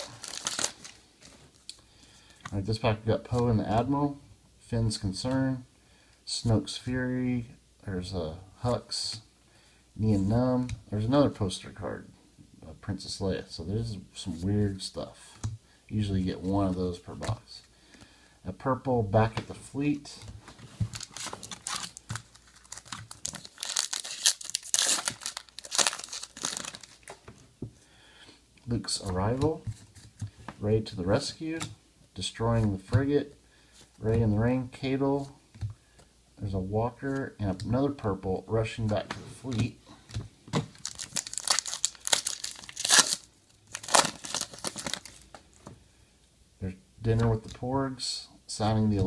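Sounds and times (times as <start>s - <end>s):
foil wrapper crinkling and tearing: 0.0s - 1.0s, 20.9s - 27.2s, 40.7s - 45.2s.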